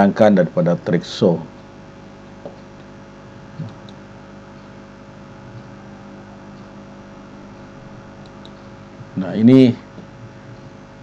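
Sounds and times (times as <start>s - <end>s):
electrical hum and hiss: 0.0s - 11.0s.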